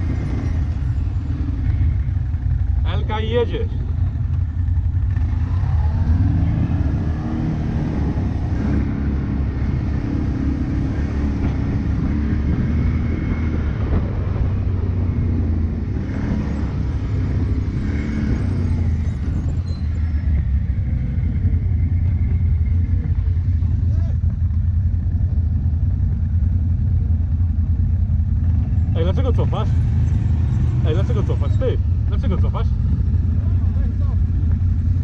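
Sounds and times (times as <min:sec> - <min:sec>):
quad bike engine revving: 0:00.0 - 0:03.9, 0:04.8 - 0:24.2.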